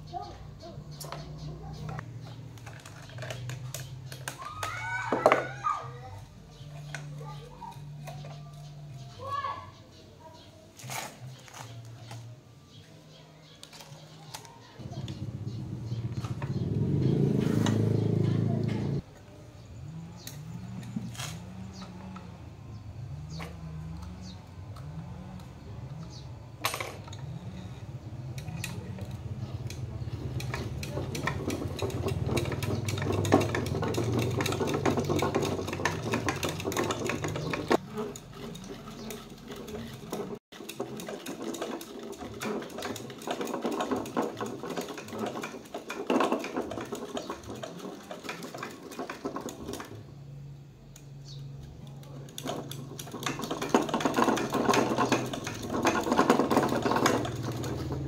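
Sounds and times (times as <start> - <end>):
machine clicking rapidly: 29.6 - 49.9.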